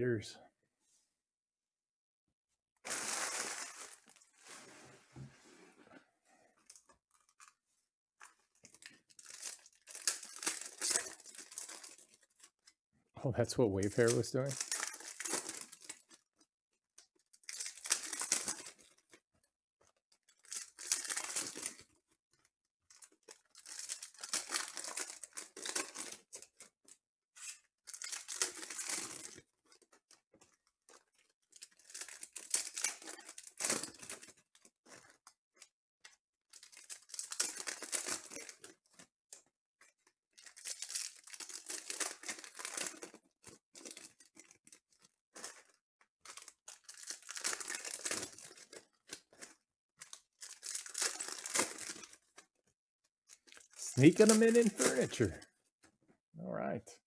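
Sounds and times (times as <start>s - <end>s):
foil wrappers tearing and crinkling: 2.8s - 4.6s, 8.2s - 12.5s, 14.0s - 16.2s, 17.3s - 19.2s, 20.3s - 26.7s, 27.4s - 35.2s, 36.5s - 39.1s, 40.3s - 52.5s, 53.3s - 55.4s.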